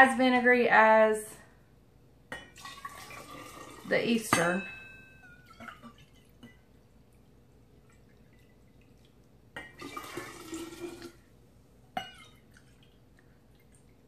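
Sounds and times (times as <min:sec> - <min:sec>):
liquid pouring and splashing: 0:02.5 - 0:03.9, 0:05.4 - 0:11.3, 0:12.1 - 0:14.0.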